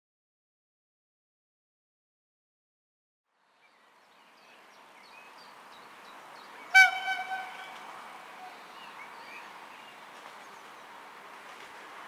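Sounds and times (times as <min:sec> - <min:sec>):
low rail rumble: 0:04.4 - 0:12.0
locomotive horn blast: 0:06.7 - 0:08.5.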